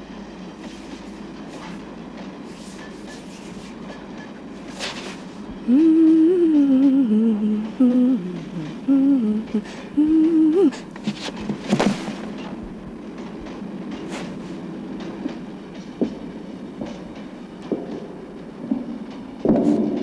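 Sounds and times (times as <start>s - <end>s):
steady background noise: 0.0s - 20.0s
woman humming a slow tune: 5.6s - 10.9s.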